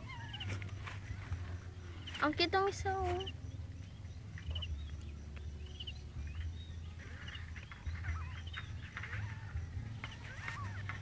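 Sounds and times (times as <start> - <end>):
kittens mewing: 0.0 - 0.6.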